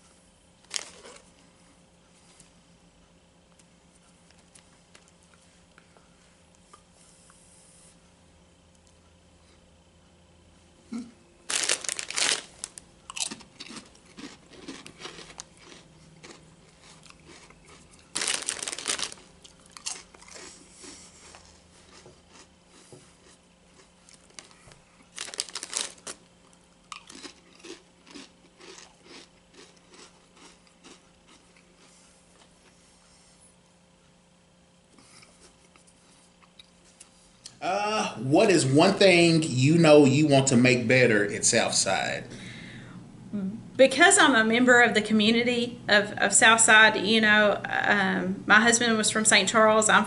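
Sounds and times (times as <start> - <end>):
chip bag rustling: 0.6 - 1.3, 11.4 - 20.6, 24.1 - 26.3
chips crunching while chewed: 0.6 - 1.4, 11.4 - 32.6.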